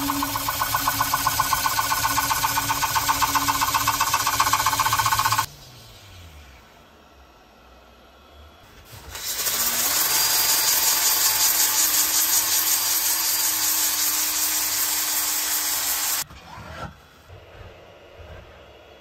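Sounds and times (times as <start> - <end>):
drill motor whine: 0.0 - 5.5, 9.1 - 16.2
sanding disc scrubbing wood: 0.0 - 5.5.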